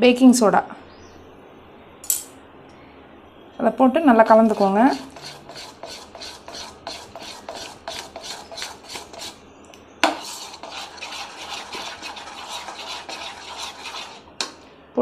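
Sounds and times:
metal spoon stirring batter: 4.1 - 9.4, 10.0 - 14.6.

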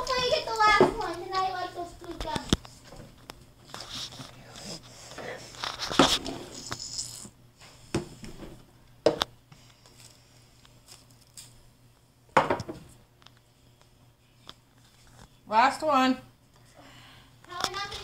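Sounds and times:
cups knocking down on table: 12.4 - 12.8.

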